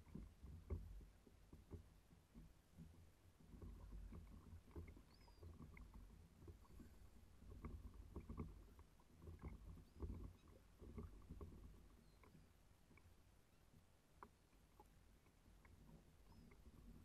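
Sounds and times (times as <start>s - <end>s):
small waves lapping against hull: 0.0s - 17.0s
seabird calls: 3.9s - 7.2s.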